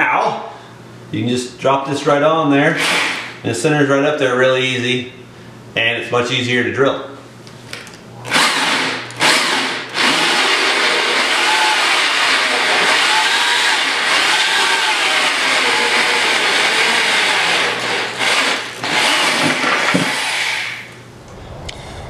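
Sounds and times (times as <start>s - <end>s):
electric drill boring through steel: 8.3s - 20.9s.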